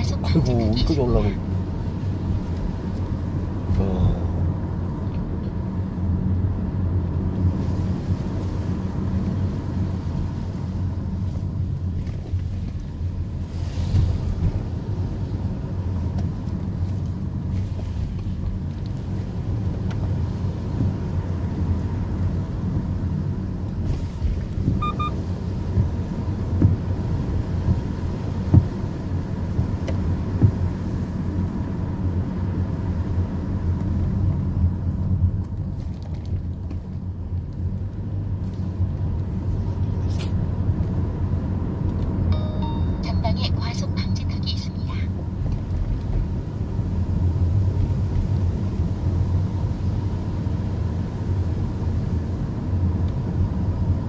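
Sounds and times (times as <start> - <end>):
car engine and tyre rumble: 0.0 - 54.0
short double beep: 24.8 - 25.2, 42.3 - 43.5.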